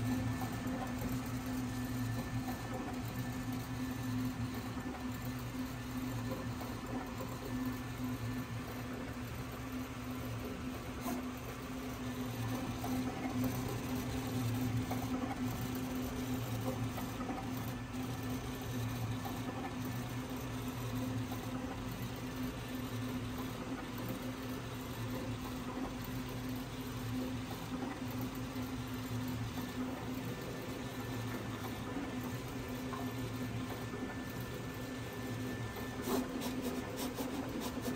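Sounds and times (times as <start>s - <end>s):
cutting plotter motor hum: 0.0s - 37.9s.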